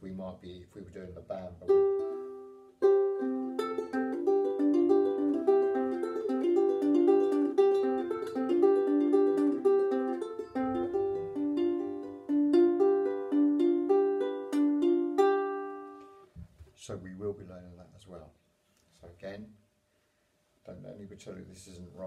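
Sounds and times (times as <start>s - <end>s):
ukulele finger-picked arpeggio: 1.6s - 16.2s.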